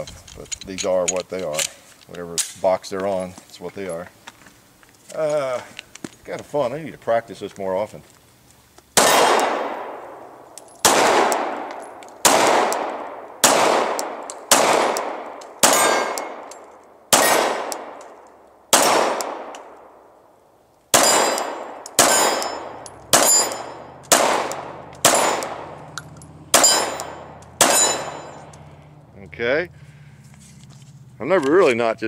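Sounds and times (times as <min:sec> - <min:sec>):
pistol shots: 0:09.0 - 0:10.2, 0:10.8 - 0:19.8, 0:20.9 - 0:28.6
bullets clanging on steel plates: 0:21.0 - 0:24.2, 0:24.9 - 0:28.7.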